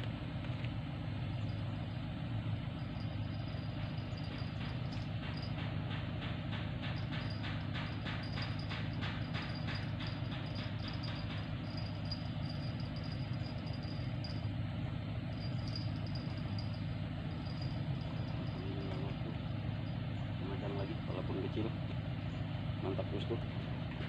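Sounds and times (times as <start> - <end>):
low rumble: 1.1 - 6.3, 6.9 - 20.6.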